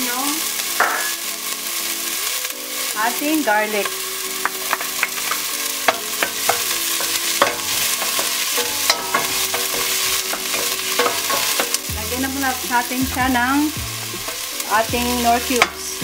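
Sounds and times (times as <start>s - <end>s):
garlic and onion sizzling in oil: 0.0s - 16.0s
wooden spatula scraping pot: 3.8s - 16.0s.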